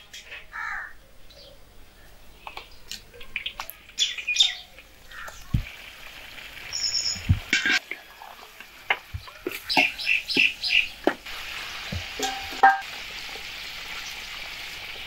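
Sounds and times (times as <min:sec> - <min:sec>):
small birds chirping: 0:00.0 - 0:05.7, 0:06.6 - 0:07.5, 0:09.0 - 0:12.1.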